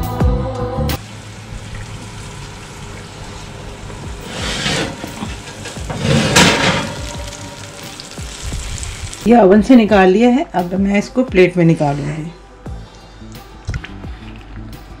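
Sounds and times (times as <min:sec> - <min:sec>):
sauce sizzling: 0:01.0 - 0:09.4
guitar music: 0:01.6 - 0:09.3.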